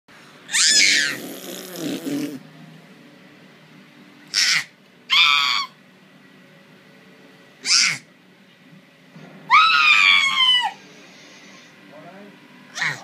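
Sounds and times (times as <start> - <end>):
baby squealing: 0.5 - 1.4, 7.6 - 8.0.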